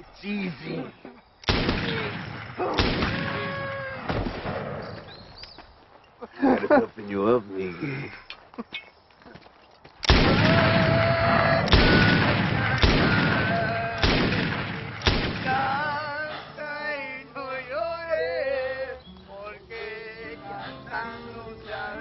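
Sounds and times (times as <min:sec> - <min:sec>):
handgun shots echoing: 0:01.4 - 0:04.9, 0:11.6 - 0:15.9
music with singing voice: 0:15.4 - 0:22.0.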